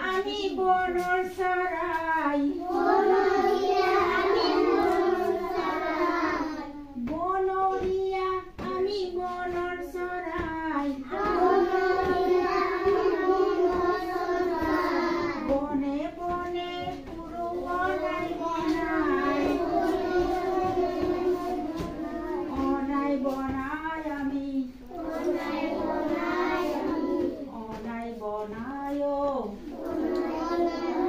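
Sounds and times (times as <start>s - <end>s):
children singing together: 2.4s - 7.0s, 10.4s - 15.6s, 16.4s - 23.6s, 24.8s - 27.8s, 29.5s - 31.0s.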